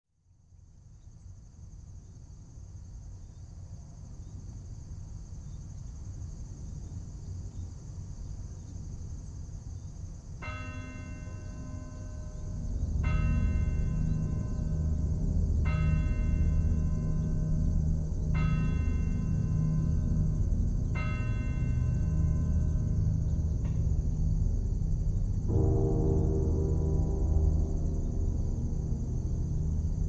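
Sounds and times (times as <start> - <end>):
steady high hiss: 7.9 - 30.0
bell tolling: 10.7 - 24.1
low rumble: 11.7 - 30.0.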